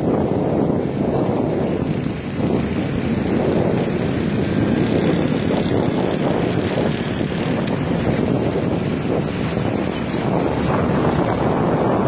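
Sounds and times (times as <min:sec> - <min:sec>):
motorbike engine: 0:00.0 - 0:12.0
road noise: 0:00.0 - 0:12.0
wind rushing over microphone: 0:00.0 - 0:12.0.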